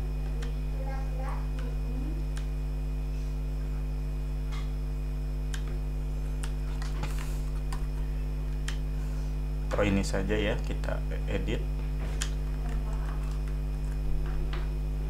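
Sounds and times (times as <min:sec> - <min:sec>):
low electrical mains hum: 0:00.0 - 0:15.0
computer mouse clicks: 0:02.3 - 0:02.5, 0:06.4 - 0:07.9, 0:08.6 - 0:08.8, 0:12.2 - 0:14.0.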